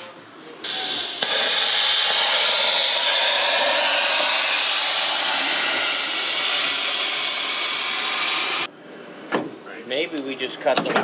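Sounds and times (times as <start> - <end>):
plasma cutter hissing: 0.6 - 8.7.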